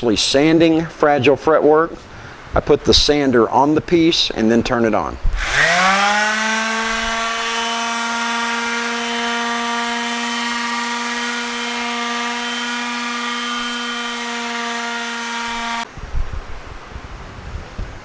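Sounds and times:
palm sander humming: 5.4s - 15.9s.

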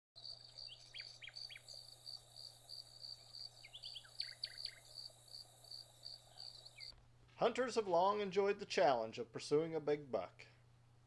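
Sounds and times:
bird chirps: 0.2s - 1.9s, 3.1s - 5.1s, 5.7s - 6.9s
insect trilling: 0.2s - 6.9s.

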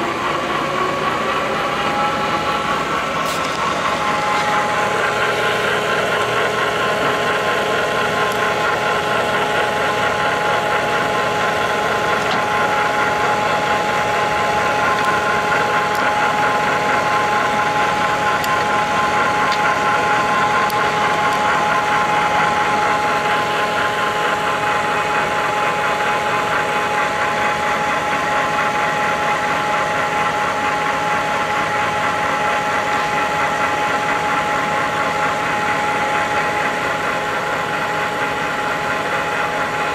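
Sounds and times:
drill press gear whine and rumble: 0.0s - 39.9s.

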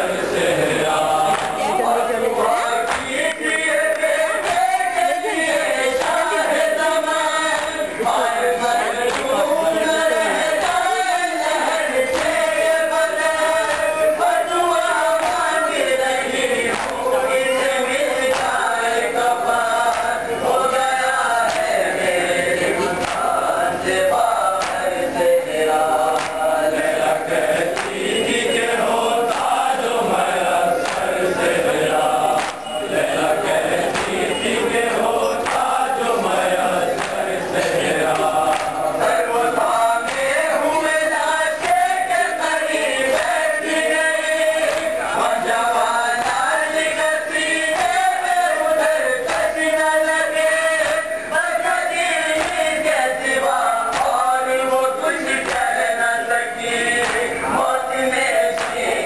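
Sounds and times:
men chanting together: 0.0s - 59.0s
chest-beating slaps: 26.2s - 26.5s, 30.8s - 31.2s, 32.3s - 35.8s.

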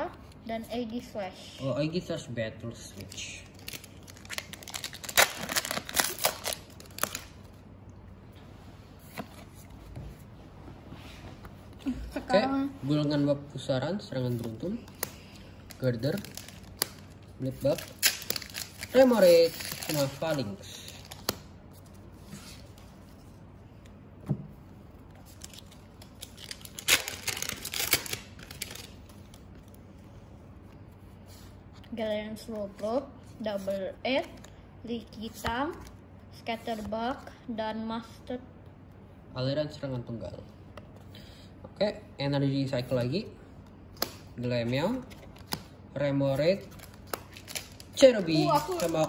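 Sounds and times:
cards rustling: 2.9s - 7.6s, 14.2s - 24.0s, 25.1s - 30.0s, 43.9s - 49.0s
foil wrapper crinkling and tearing: 3.5s - 7.4s, 15.7s - 21.3s, 25.2s - 29.4s.

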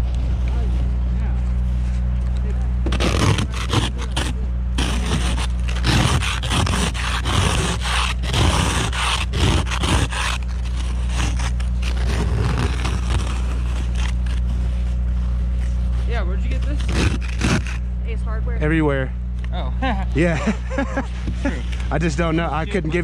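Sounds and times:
low engine hum: 0.0s - 23.0s
ice scraper scraping windshield: 2.8s - 17.8s.

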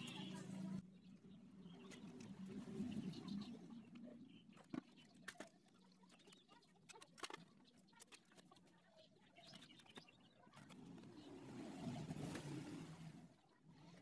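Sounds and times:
faint clicks and taps: 3.8s - 11.1s.

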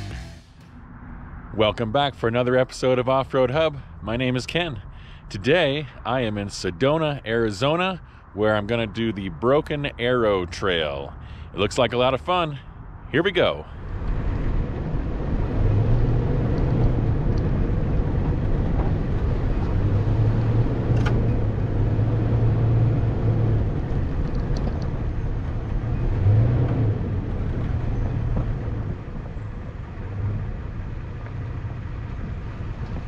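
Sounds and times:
truck engine running: 0.0s - 0.8s.

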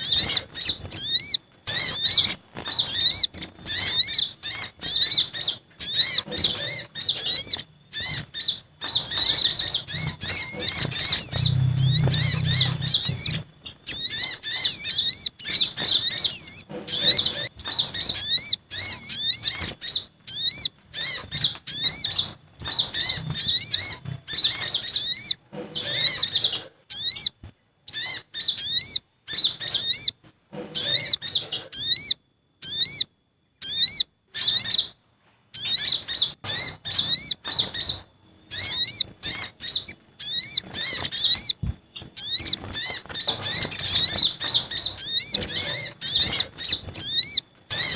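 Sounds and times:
small birds chirping: 0.0s - 47.9s.

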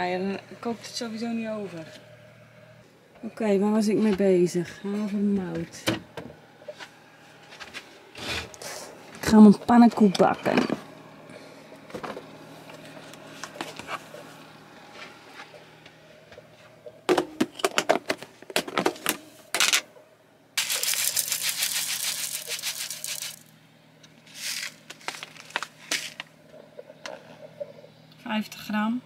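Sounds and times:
plastic containers clattering: 17.1s - 19.9s, 20.6s - 23.4s
oats pouring into plastic jar: 20.6s - 23.5s, 24.4s - 25.6s.

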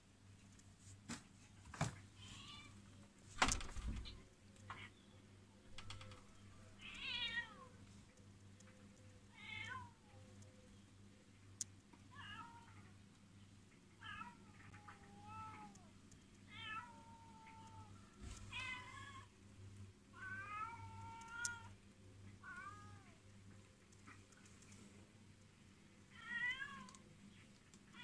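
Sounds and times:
cats meowing: 5.8s - 7.8s, 9.3s - 10.0s, 12.1s - 12.9s, 14.0s - 19.3s, 20.1s - 21.8s, 22.4s - 23.2s, 26.1s - 27.0s.

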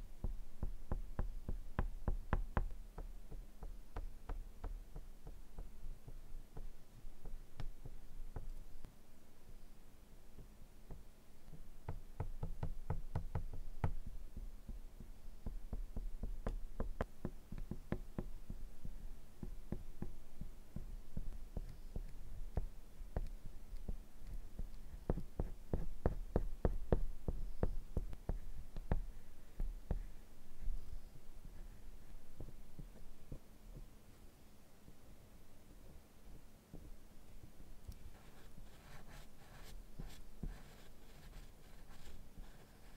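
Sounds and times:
low steady hum: 0.0s - 42.9s
oil pastel tapping on paper: 10.4s - 30.1s.

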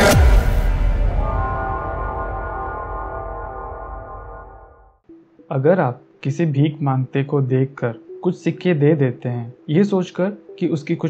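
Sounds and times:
electronic hit with falling bass sweep: 0.0s - 5.0s
held synth chord: 0.0s - 5.2s.

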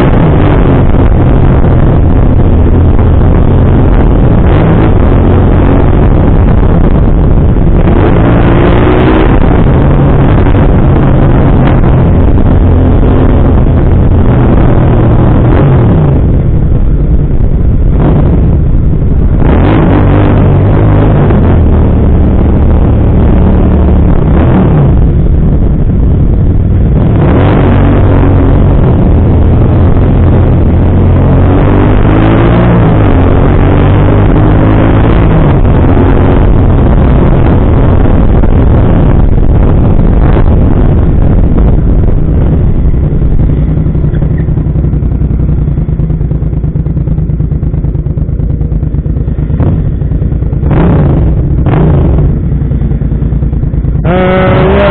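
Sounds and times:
motorcycle engine accelerating: 0.0s - 54.9s.

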